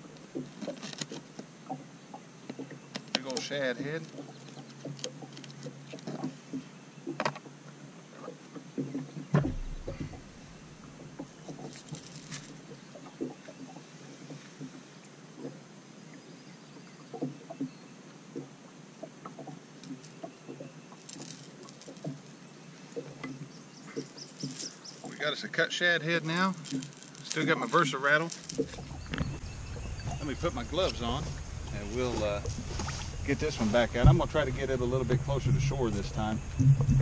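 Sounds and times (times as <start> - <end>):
taps scrapes and rustles: 0.4 - 1.5, 2.4 - 7.5, 26.2 - 29.4
loud thump: 9.3 - 10.2, 34.0 - 34.5.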